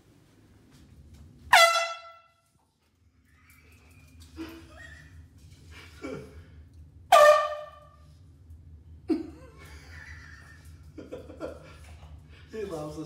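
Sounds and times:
air horn blast: 0:01.5 - 0:02.4, 0:07.1 - 0:08.1.

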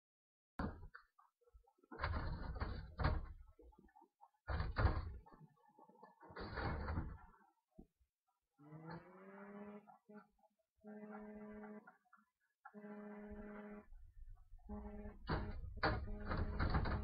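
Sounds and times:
muffled knocking and rustling: 0:01.8 - 0:07.9.

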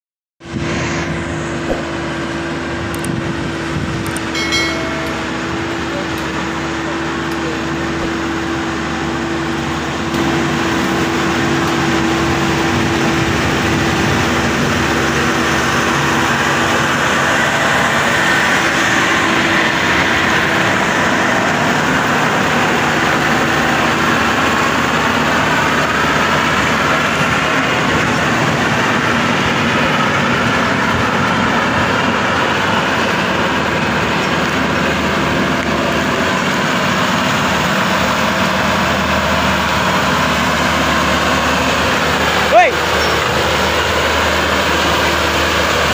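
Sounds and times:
combine harvester engine running: 0:00.4 - 0:45.9
thin steady whine: 0:00.5 - 0:35.4.

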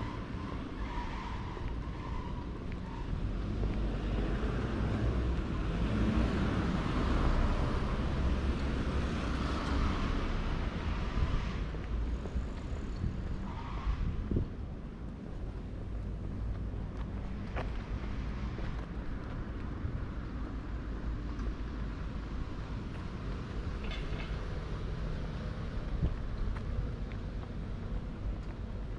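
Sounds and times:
car passing by: 0:03.4 - 0:14.1
wind rumble on microphone: 0:08.8 - 0:28.9.

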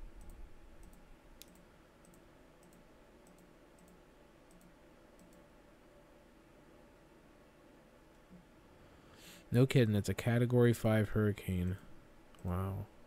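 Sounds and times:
computer mouse clicks: 0:00.2 - 0:05.5.

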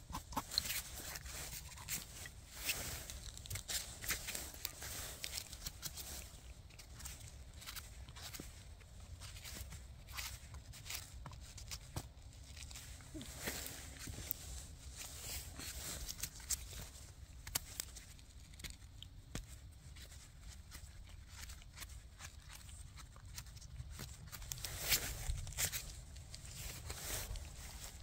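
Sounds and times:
knife scraping mushroom stems: 0:00.0 - 0:08.4
mushrooms handled clicking rustling: 0:00.0 - 0:28.0.

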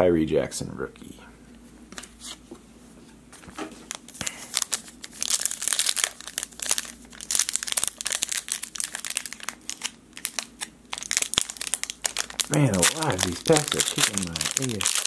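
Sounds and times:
foil card pack crinkling and tearing: 0:03.9 - 0:15.0.

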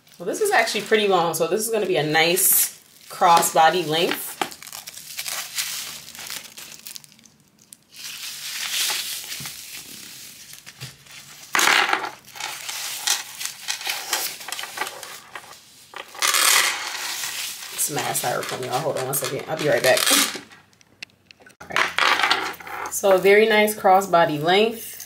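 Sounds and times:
wrapping crinkling and tearing: 0:01.8 - 0:11.6, 0:12.2 - 0:20.6.

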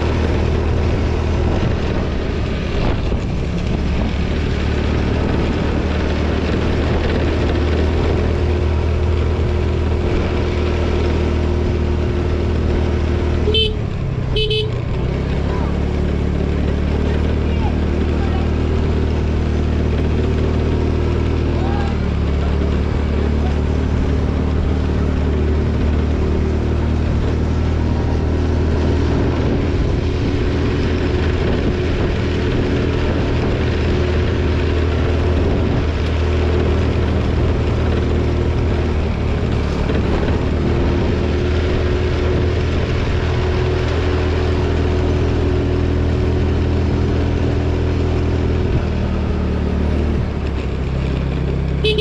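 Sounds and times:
wind rush: 0:00.0 - 0:10.8, 0:27.6 - 0:43.5
road noise: 0:00.0 - 0:52.0
scooter engine running: 0:00.0 - 0:52.0.

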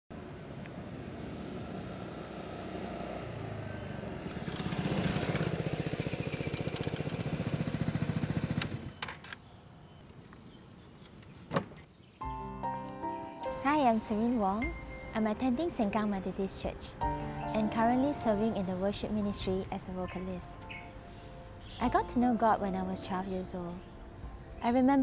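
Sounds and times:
motor scooter engine: 0:00.3 - 0:09.2.

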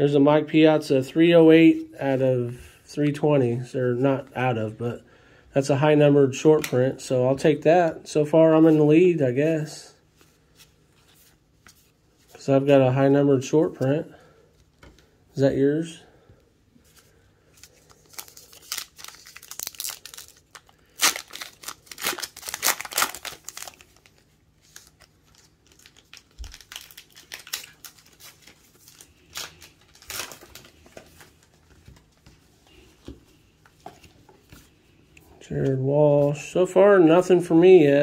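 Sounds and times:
card pack wrappers crinkling: 0:17.6 - 0:32.2.

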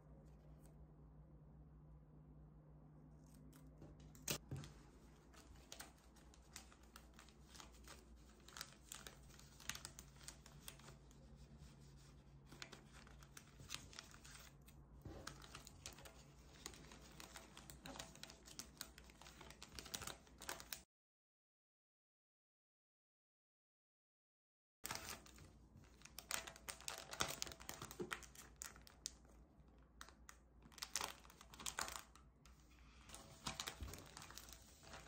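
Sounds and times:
plastic bags crinkling: 0:04.3 - 0:11.0, 0:24.9 - 0:29.3, 0:30.7 - 0:32.2, 0:33.1 - 0:35.0.

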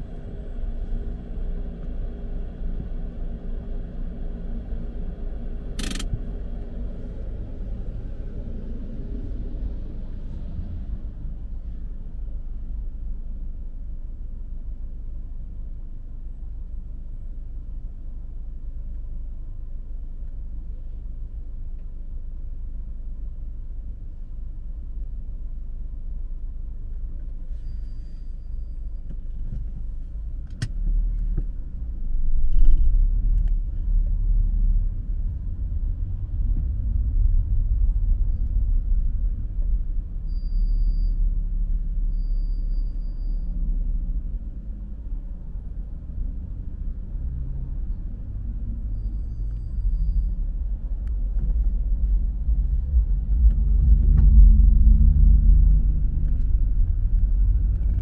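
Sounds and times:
car engine and road noise: 0:00.0 - 0:58.0
sharp click: 0:05.8 - 0:06.2.

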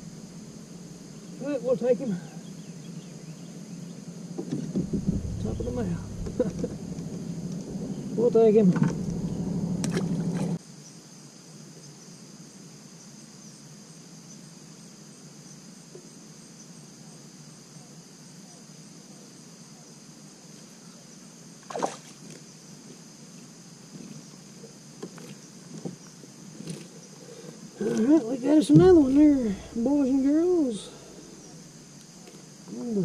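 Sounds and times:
high-pitched insect drone: 0:00.0 - 0:11.3, 0:26.7 - 0:33.0
low hum: 0:03.4 - 0:10.6, 0:28.6 - 0:32.0.

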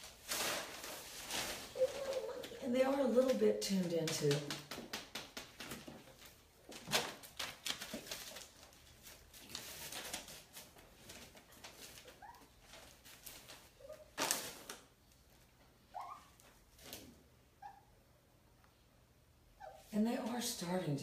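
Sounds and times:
puppies scuffling: 0:00.3 - 0:14.4
puppy squeaking: 0:15.9 - 0:16.4.

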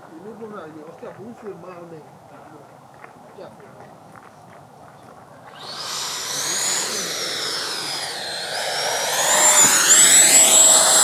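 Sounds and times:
model jet fan whine: 0:05.4 - 0:11.0.

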